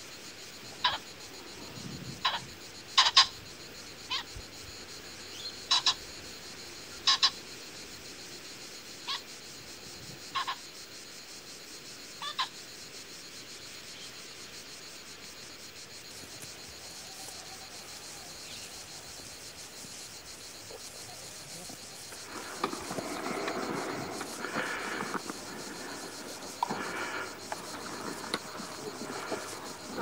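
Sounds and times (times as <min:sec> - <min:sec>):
high-pitched insect-like hiss: 0:00.0 - 0:30.0.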